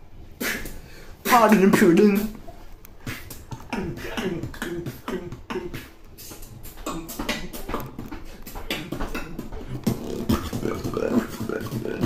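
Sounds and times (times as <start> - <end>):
beatboxing percussive hits: 0.4 - 12.0
low vocal bass tones: 3.5 - 12.0.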